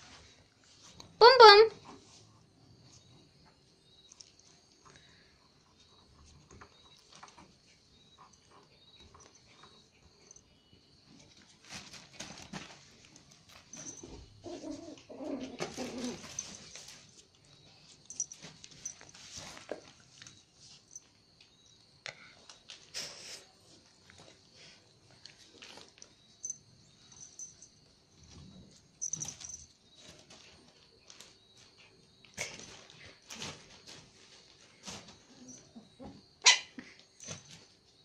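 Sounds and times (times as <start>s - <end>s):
puppy growling: 14.4s - 16.4s.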